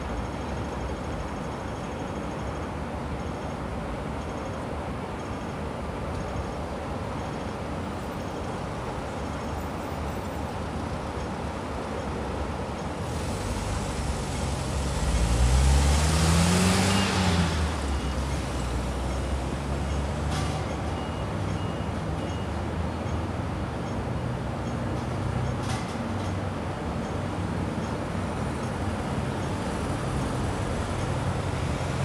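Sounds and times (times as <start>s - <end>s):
highway traffic noise: 0.0s - 32.0s
heavy truck passing: 13.0s - 22.2s, 28.4s - 32.0s.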